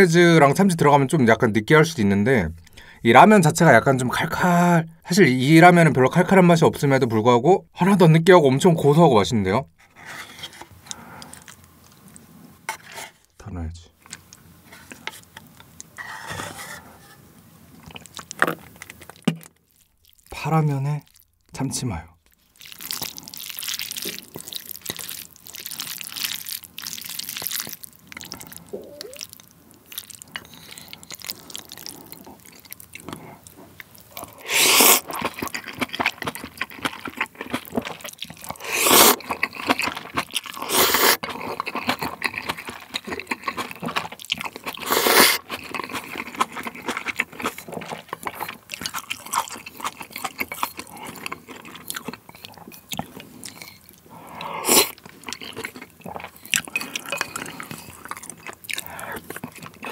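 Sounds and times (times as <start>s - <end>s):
wet chewing and mouth clicks: 17.8s - 20.4s, 22.3s - 59.9s
loud noodle slurps: 34.2s - 35.3s, 38.5s - 39.3s, 40.5s - 41.5s, 44.8s - 45.5s, 54.3s - 55.0s.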